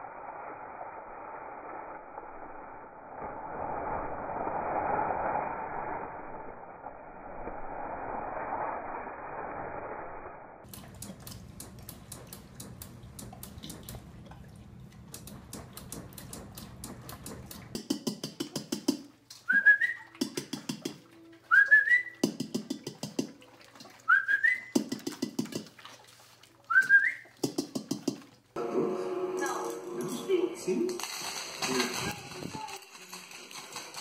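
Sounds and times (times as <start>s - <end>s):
person whistling: 19.5s - 20.1s, 21.5s - 22.2s, 24.1s - 24.8s, 26.7s - 27.3s.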